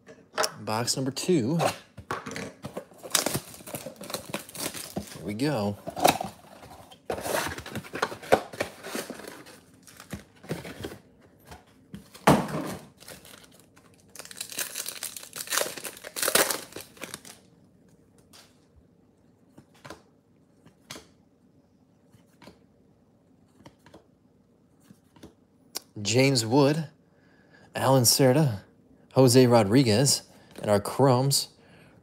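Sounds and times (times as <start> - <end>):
wrappers tearing and crinkling: 3.0 - 6.1, 12.8 - 17.4.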